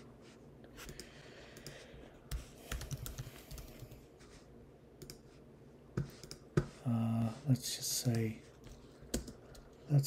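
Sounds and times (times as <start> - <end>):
computer keyboard keystrokes: 2.3 - 4.0, 9.1 - 9.7.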